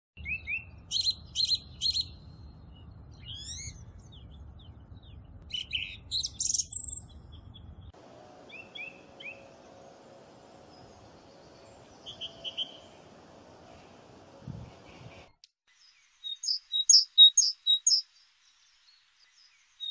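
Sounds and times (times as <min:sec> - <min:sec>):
low background rumble: 0:00.7 - 0:15.4.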